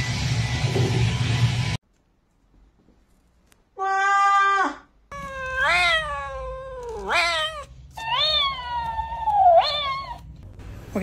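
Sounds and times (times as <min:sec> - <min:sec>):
cat meowing: 0:03.8 - 0:10.3.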